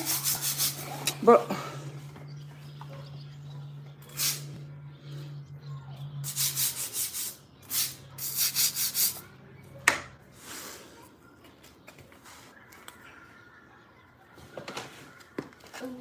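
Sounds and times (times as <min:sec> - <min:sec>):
brush scrubbing concrete floor: 0:00.0 - 0:01.1, 0:06.2 - 0:09.2.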